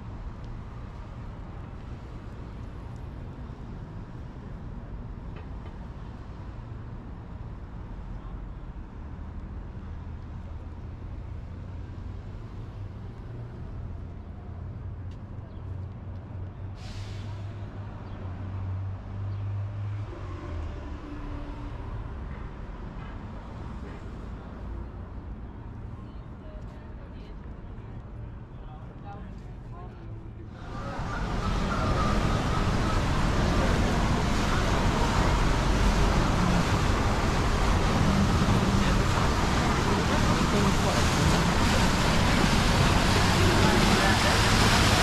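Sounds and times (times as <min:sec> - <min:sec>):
brief hiss: 0:16.8 - 0:17.5
heavy vehicle engine rumbling: 0:30.3 - 0:45.0.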